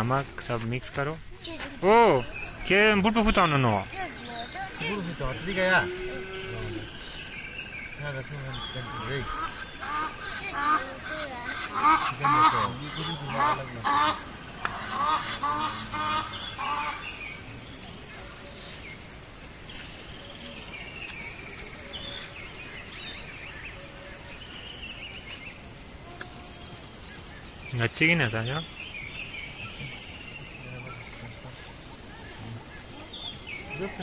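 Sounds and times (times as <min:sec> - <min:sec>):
honking bird calls: 0:01.8 - 0:19.0.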